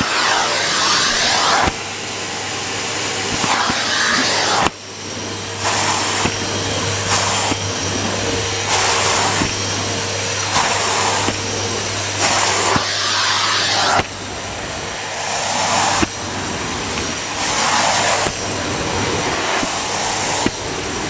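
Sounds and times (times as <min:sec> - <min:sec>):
vacuum cleaner running: 0:00.0 - 0:21.0.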